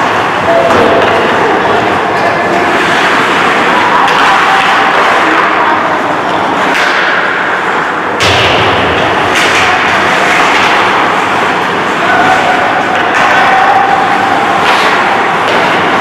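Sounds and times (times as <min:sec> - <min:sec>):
sticks and puck striking: 0:00.0 - 0:01.4, 0:06.3 - 0:16.0
ice rink noise: 0:00.0 - 0:16.0.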